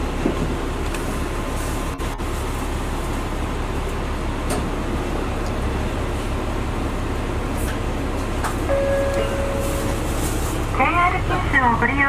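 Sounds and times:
idling diesel train rumble: 0.0s - 12.0s.

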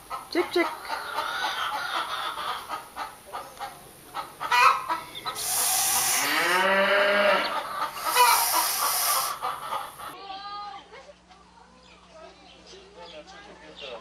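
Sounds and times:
chick peeping softly: 0.1s - 6.0s
goose calling loudly: 4.4s - 10.1s.

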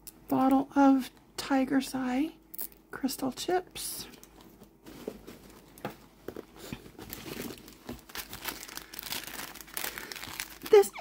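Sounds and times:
paper packaging crinkling: 4.9s - 11.0s.

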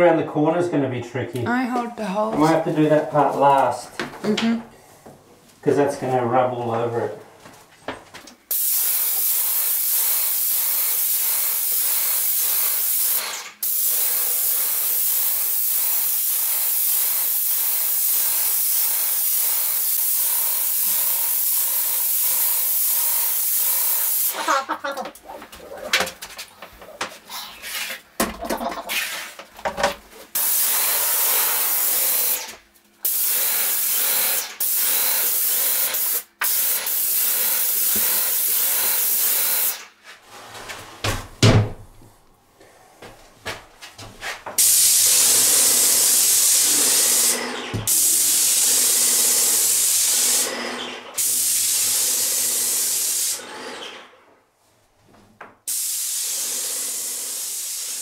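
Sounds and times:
paint spray gun hissing: 8.5s - 24.5s, 30.4s - 39.9s, 44.6s - 50.6s, 51.2s - 53.5s, 55.7s - 58.0s
thump: 41.0s - 41.8s.

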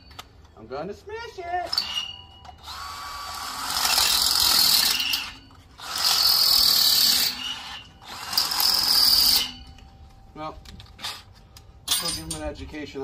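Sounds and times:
power drill grinding steel: 1.7s - 9.7s.

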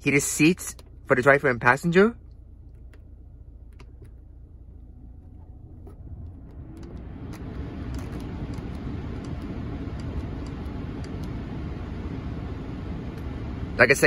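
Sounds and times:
blower fan rushing air: 3.3s - 14.0s.

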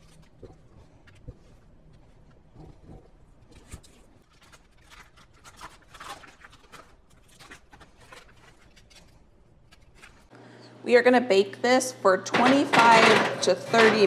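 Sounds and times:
spatula scraping a bowl: 12.3s - 14.0s.

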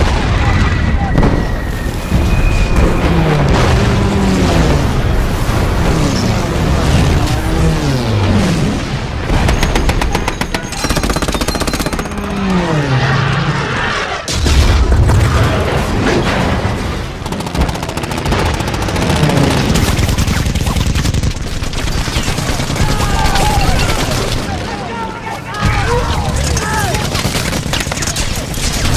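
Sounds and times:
explosions with heavy boom: 0.0s - 10.6s, 13.5s - 24.8s
warplane engines passing overhead: 0.9s - 14.3s, 15.3s - 28.9s
machine-gun fire: 2.4s - 12.6s, 14.6s - 24.8s, 25.6s - 28.9s.

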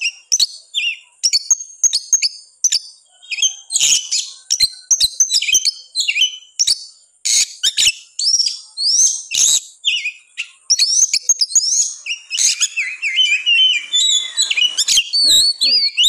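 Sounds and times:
songbird singing fast whistles: 0.0s - 16.0s.

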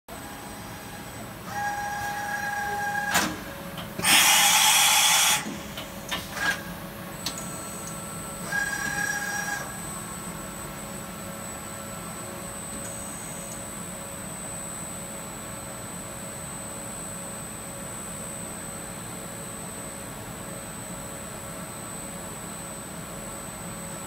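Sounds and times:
machine electric whine: 0.1s - 18.4s.

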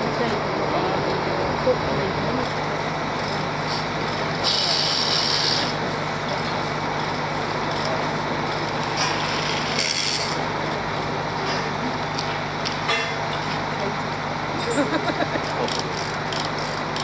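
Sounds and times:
diesel engine humming: 0.0s - 17.0s.

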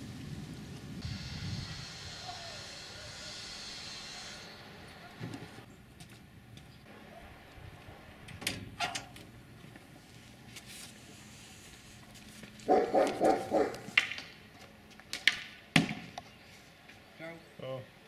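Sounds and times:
dog barking: 12.7s - 13.9s.

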